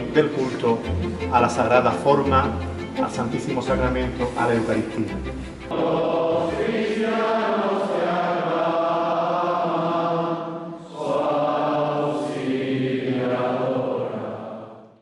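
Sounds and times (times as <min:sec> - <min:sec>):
congregation singing a hymn: 0:03.5 - 0:15.0.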